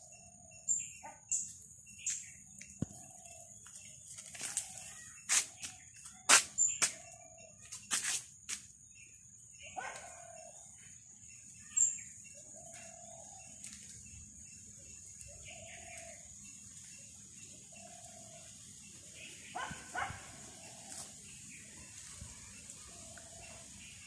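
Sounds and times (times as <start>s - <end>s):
footsteps crunching on dry leaves: 3.0s - 8.7s, 20.4s - 23.2s
insect drone high whine: 10.3s - 24.0s.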